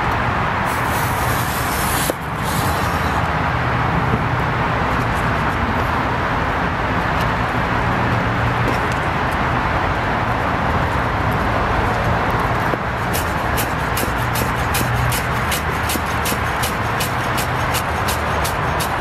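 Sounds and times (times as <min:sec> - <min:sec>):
road traffic hum: 0:00.0 - 0:19.0
knife cutting apple on board: 0:12.7 - 0:19.0.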